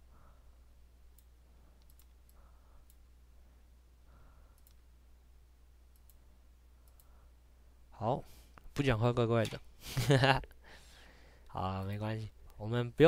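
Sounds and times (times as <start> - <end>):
low steady hum: 0.0 - 13.0
faint mouse clicks: 1.1 - 3.0, 4.5 - 4.9, 5.9 - 6.2, 6.8 - 7.2.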